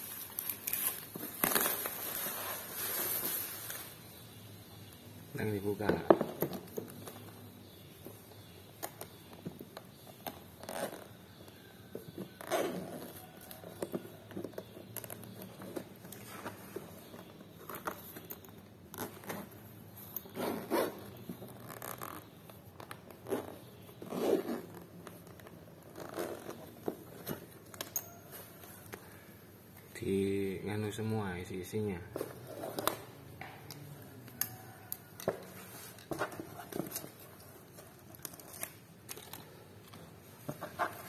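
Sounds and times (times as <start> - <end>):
zipper being unzipped: 12.4 - 13.2, 20.3 - 22.3, 23.2 - 24.8, 25.9 - 26.7.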